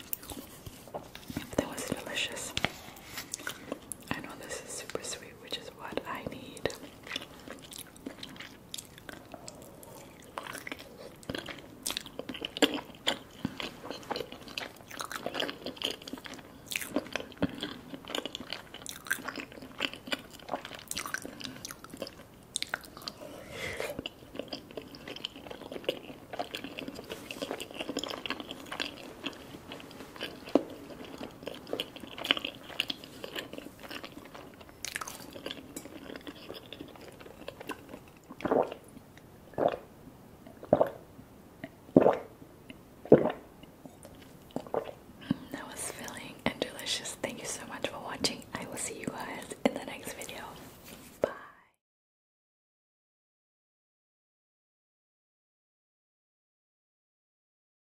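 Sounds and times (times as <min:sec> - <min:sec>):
person chewing: 0:00.0 - 0:02.0, 0:02.6 - 0:04.1, 0:06.7 - 0:41.0, 0:41.6 - 0:45.4
wet mouth clicks: 0:40.5 - 0:41.0, 0:41.6 - 0:43.4.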